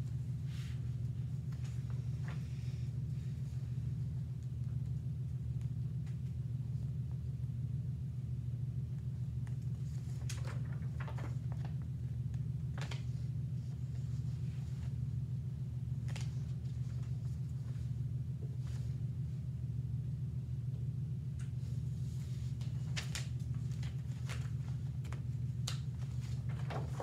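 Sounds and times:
low mechanical hum: 0.0s - 27.0s
paper rustling and clicks: 9.5s - 11.9s, 12.7s - 13.2s, 16.0s - 17.1s, 22.6s - 27.0s.

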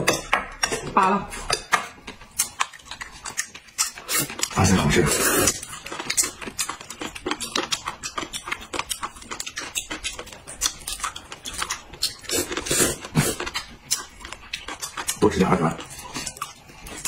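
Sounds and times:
slurping noodles: 3.9s - 5.6s, 12.2s - 13.6s.

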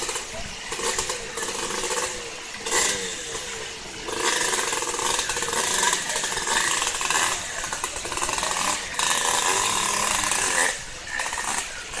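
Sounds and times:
dirt bike engine revving: 0.0s - 12.0s
rushing river water: 0.0s - 12.0s.

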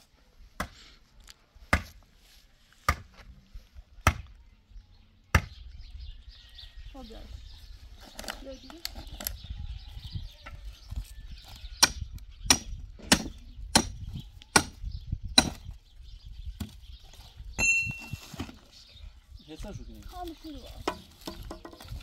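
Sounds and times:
sharp ringing blows: 17.6s - 18.2s
short metallic ring: 17.6s - 18.2s.

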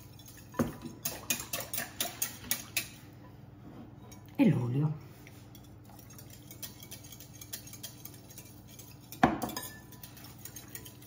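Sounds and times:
whisk beating in glass bowl: 0.0s - 3.0s, 5.5s - 11.0s.

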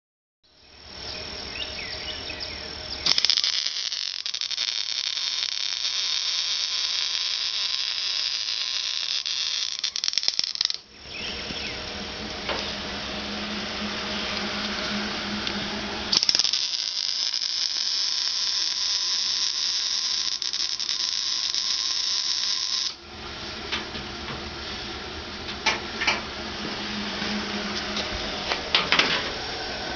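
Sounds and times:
low hum: 0.6s - 29.9s
welding arc hissing: 0.8s - 10.9s, 11.6s - 23.5s.

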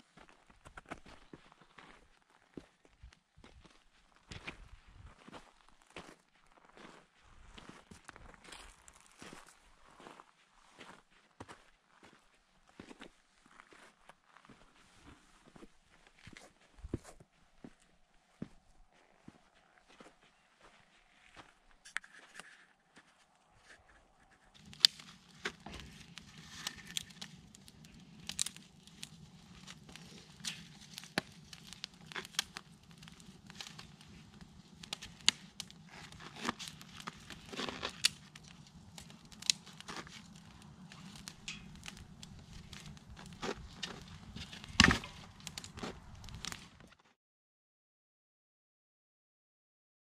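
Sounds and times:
campfire crackling: 24.5s - 47.0s
twigs snapping: 24.6s - 46.9s.

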